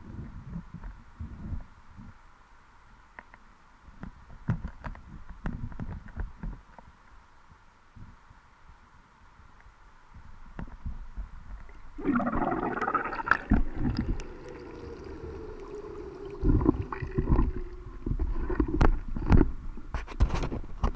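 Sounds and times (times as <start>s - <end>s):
water rushing underwater: 11.7s - 19.4s.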